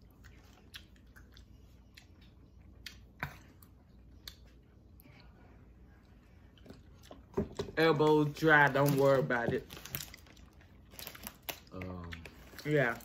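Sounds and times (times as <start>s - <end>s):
chewing sticky candy: 0.0s - 4.6s, 8.3s - 13.0s.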